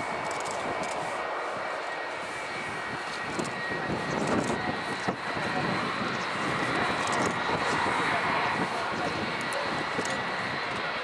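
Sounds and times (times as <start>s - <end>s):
jet engines whining: 0.0s - 11.0s.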